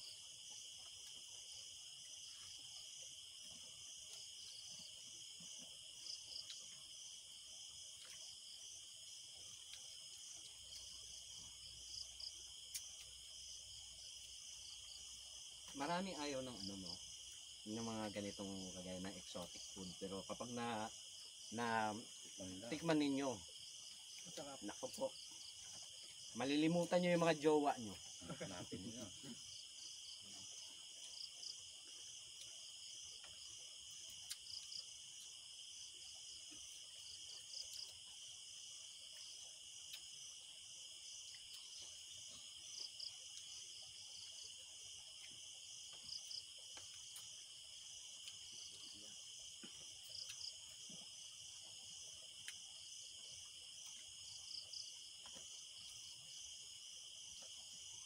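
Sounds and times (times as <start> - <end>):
crickets trilling: 0.0 - 58.0.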